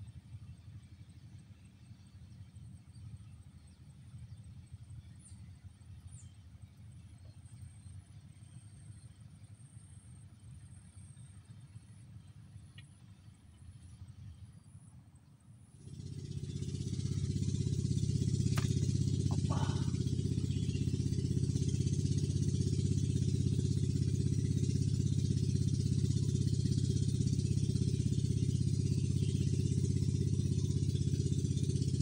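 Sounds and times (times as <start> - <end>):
engine droning: 15.5 - 32.0.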